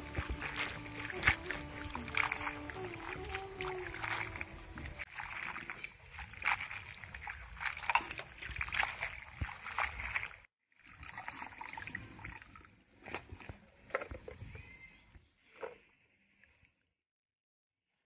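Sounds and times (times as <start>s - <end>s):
hands sloshing water in bowl: 0.0s - 14.4s.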